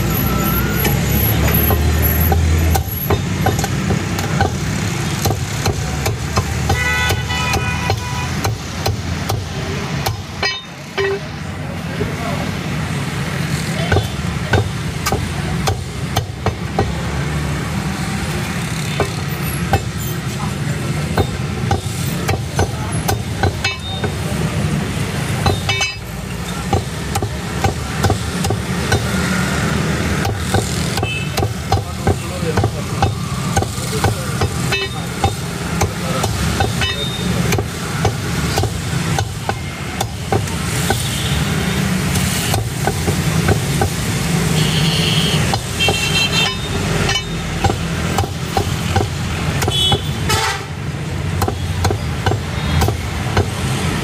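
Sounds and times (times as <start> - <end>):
cleaver chopping on wooden block: 1.6 - 10.6, 13.9 - 17.0, 21.1 - 24.2, 26.6 - 29.2, 30.1 - 41.1, 42.1 - 44.0, 47.1 - 50.2, 51.4 - 53.7.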